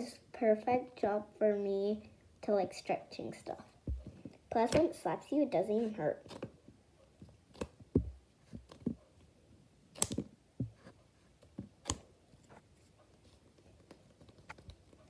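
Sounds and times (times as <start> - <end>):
rubber toy taps and slaps: 3.8 - 5.0.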